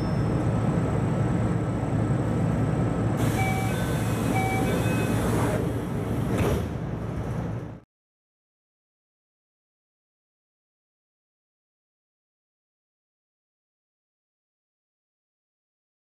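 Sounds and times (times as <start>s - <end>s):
train hum: 0.0s - 7.8s
sliding doors thudding shut: 3.2s - 6.8s.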